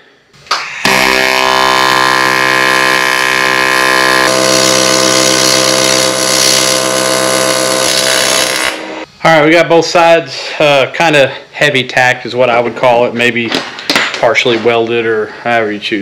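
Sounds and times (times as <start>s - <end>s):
welding arc buzzing: 0.8s - 9.1s.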